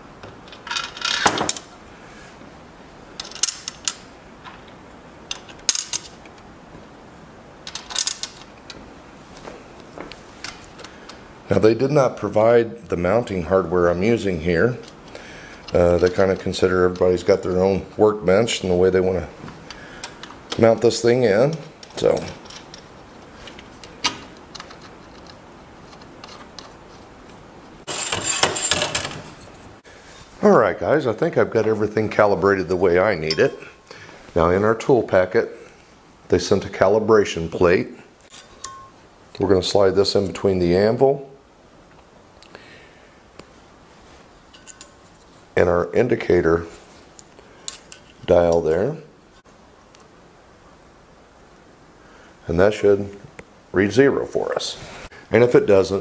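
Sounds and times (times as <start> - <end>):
metal hardware clinking on wood: 3.2 - 4.6, 5.3 - 6.2, 20.0 - 26.8, 27.9 - 29.4, 33.2 - 33.7, 38.2 - 39.0, 44.5 - 45.0.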